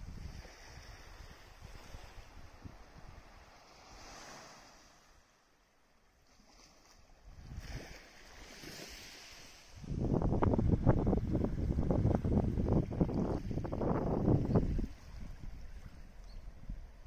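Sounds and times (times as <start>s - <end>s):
wind buffeting microphone: 0.0s - 4.2s, 9.7s - 17.0s
small waves washing onto beach: 0.0s - 17.0s.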